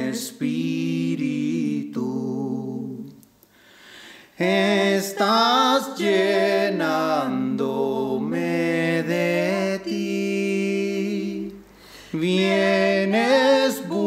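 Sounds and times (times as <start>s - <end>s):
singer breathing: 3.5s - 4.4s, 11.6s - 12.2s
person singing unaccompanied: 12.2s - 14.0s.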